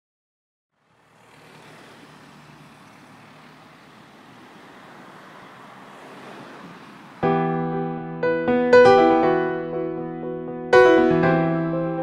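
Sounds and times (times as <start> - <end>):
distant road traffic hum: 0.7 - 9.6.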